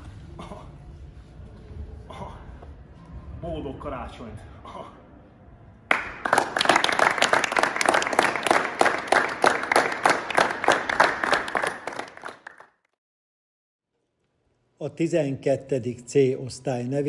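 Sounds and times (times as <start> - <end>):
children applauding: 5.9 - 12.7.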